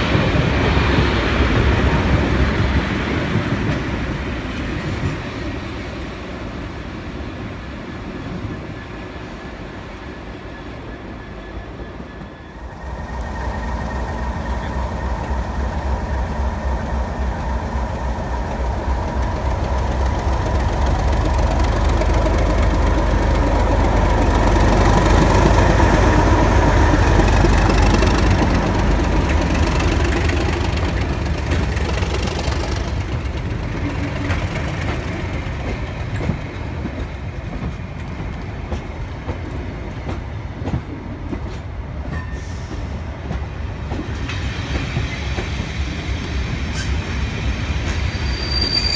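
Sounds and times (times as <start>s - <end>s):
diesel locomotive engine running: 12.5s - 40.8s
train wheels clicking over rail joints: 12.7s - 48.2s
locomotive whistle: 48.1s - 48.9s.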